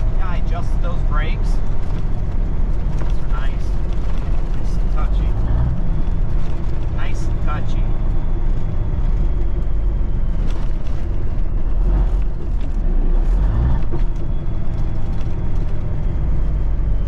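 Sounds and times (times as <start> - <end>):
truck engine and road rumble: 0.0 - 17.0.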